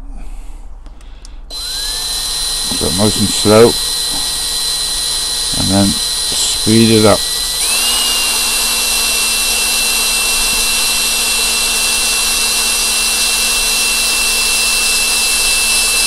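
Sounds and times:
cordless drill whining: 0:00.9 - 0:16.0.

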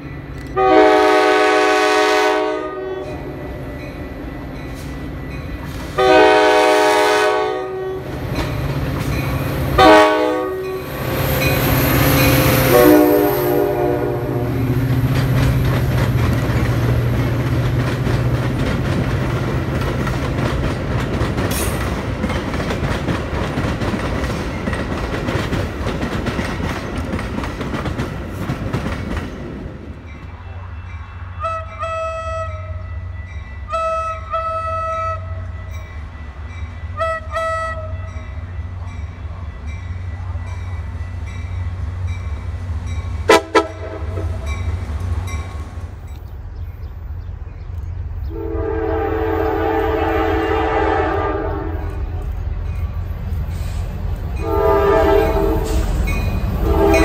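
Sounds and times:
train cars rolling on rails: 0:00.0 - 0:57.0
faint train horn blasts: 0:00.4 - 0:03.9, 0:05.9 - 0:08.2, 0:09.6 - 0:14.8, 0:30.2 - 0:41.2, 0:43.2 - 0:44.6, 0:48.2 - 0:52.4, 0:54.4 - 0:57.0
train air horn blasts: 0:00.5 - 0:03.4, 0:05.8 - 0:08.1, 0:09.6 - 0:14.8, 0:30.5 - 0:35.6, 0:36.9 - 0:38.2, 0:43.3 - 0:44.5, 0:48.3 - 0:52.2, 0:53.5 - 0:57.0.

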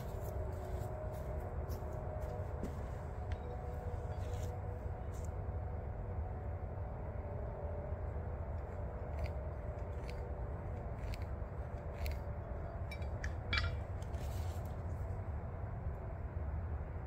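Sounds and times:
scratchy scrapes on wooden post: 0:09.1 - 0:12.3, 0:13.8 - 0:15.0.

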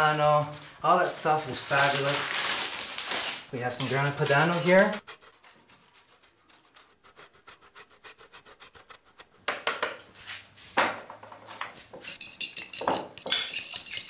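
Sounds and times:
cheese rasping on grater: 0:03.8 - 0:09.5, 0:12.0 - 0:14.0
light ringing clinks: 0:12.1 - 0:14.0.

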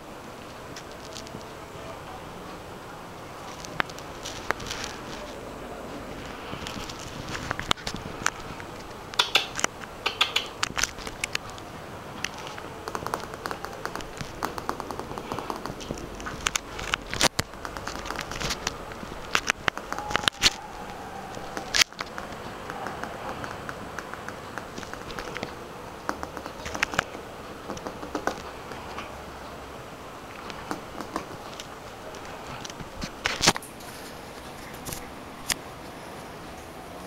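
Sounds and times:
puppy claws clicking on tiles: 0:03.4 - 0:05.4, 0:06.2 - 0:29.1, 0:30.3 - 0:33.7.

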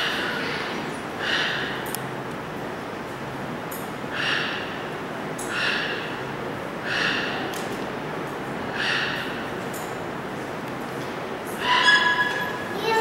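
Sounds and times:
toucan rasping croaks: 0:04.1 - 0:04.8, 0:06.8 - 0:07.5, 0:08.7 - 0:09.3.

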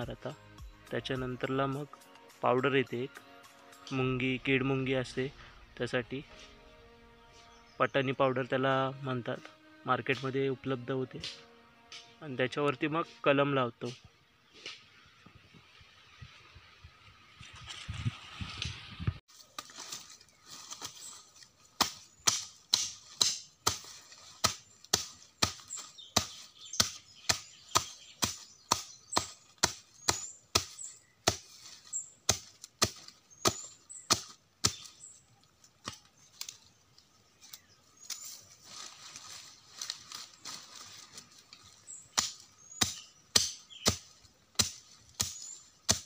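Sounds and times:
sharp chopping of leaves and twigs: 0:11.2 - 0:12.2, 0:19.3 - 0:36.7, 0:37.4 - 0:46.0.

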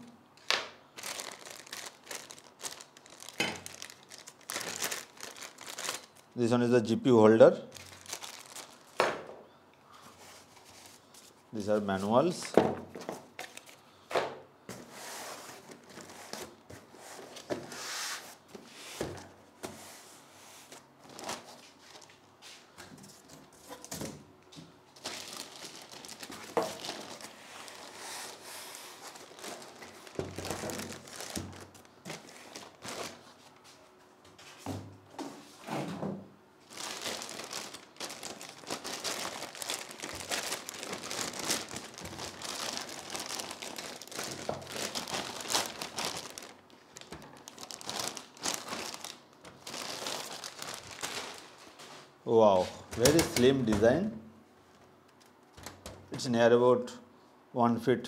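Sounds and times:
foam packing rustling: 0:01.0 - 0:06.3, 0:07.7 - 0:09.0, 0:14.8 - 0:19.8, 0:20.6 - 0:22.2, 0:24.9 - 0:33.6, 0:36.6 - 0:52.2
plastic bag crinkling: 0:01.0 - 0:06.5, 0:07.7 - 0:09.0, 0:21.0 - 0:22.2, 0:24.9 - 0:33.4, 0:36.6 - 0:51.8.

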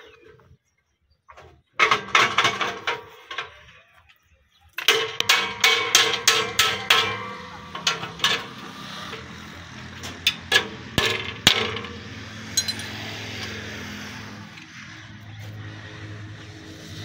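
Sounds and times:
hammer striking steel: 0:05.0 - 0:08.6, 0:10.2 - 0:13.5.

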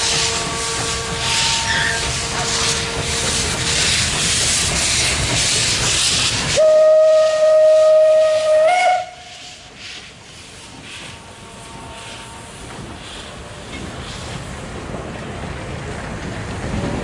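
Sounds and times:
steam whistle: 0:00.0 - 0:04.0, 0:06.5 - 0:09.8
steam locomotive exhaust and hiss: 0:00.0 - 0:17.0.

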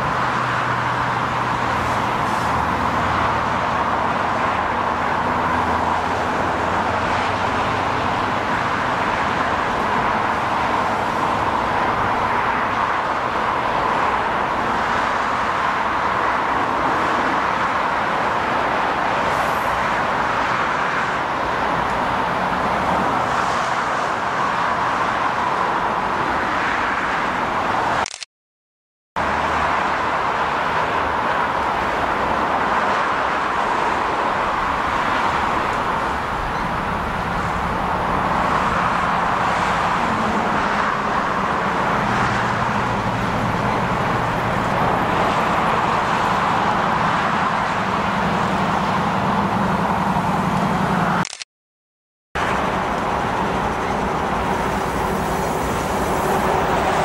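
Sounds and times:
freeway traffic noise: 0:00.0 - 0:28.3, 0:29.2 - 0:51.5, 0:52.4 - 0:57.0
freight train rolling past: 0:52.8 - 0:57.0.

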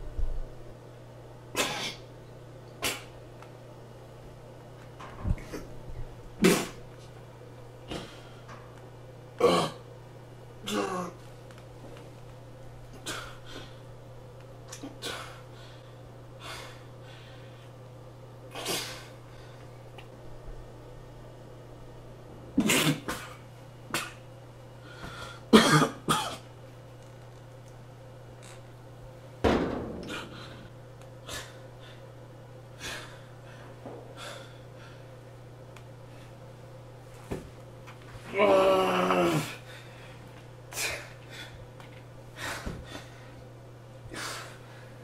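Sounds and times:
low electrical hum: 0:00.0 - 0:45.0
man breathing heavily: 0:13.0 - 0:13.9, 0:15.0 - 0:17.8, 0:24.8 - 0:25.5, 0:30.0 - 0:32.1, 0:32.7 - 0:35.2, 0:39.2 - 0:41.7, 0:42.3 - 0:43.5, 0:44.1 - 0:45.0
man breathing heavily and gasping: 0:42.3 - 0:43.4.

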